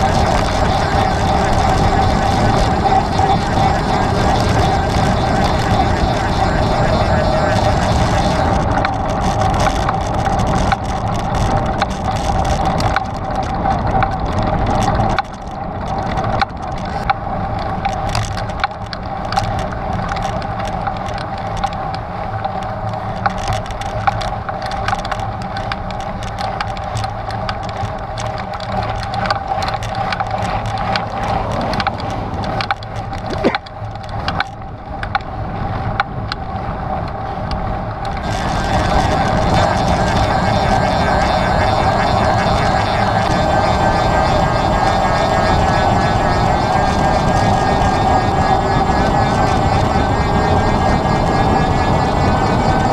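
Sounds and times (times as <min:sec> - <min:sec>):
bike tyres humming on dirt: 0:00.0 - 0:52.9
stones and bike parts rattling: 0:07.6 - 0:35.2.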